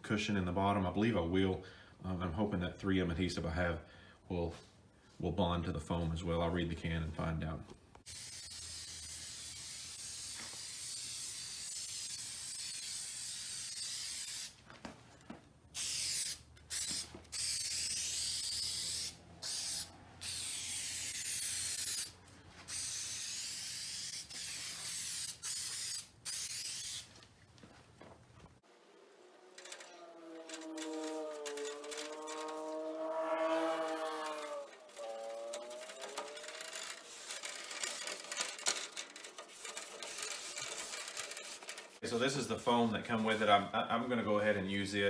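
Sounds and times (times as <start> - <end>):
aerosol spray can hissing: 8.0 - 14.6, 15.7 - 27.1.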